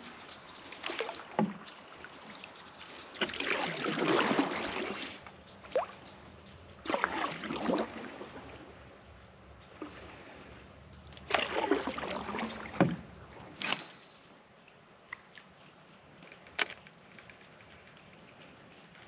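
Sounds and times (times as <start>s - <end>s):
water drips and splashes: 0.0s - 8.8s, 9.8s - 14.2s
paddle swishing through water: 0.0s - 14.1s.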